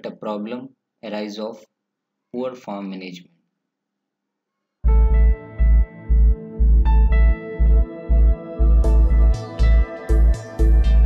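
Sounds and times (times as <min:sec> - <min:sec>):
electronic music with pulsing bass: 0:04.9 - 0:11.0.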